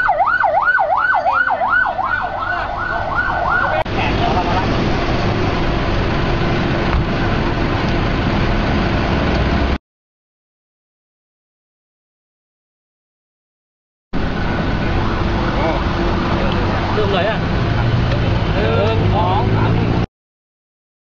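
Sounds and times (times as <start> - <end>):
siren in fast yelp: 0.0 - 3.9
steady rushing noise: 3.8 - 9.8, 14.2 - 19.9.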